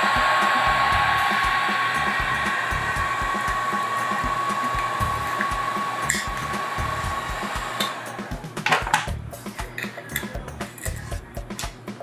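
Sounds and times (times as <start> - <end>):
heat gun blowing: 0.0 - 8.3
fan motor whine: 0.0 - 10.2.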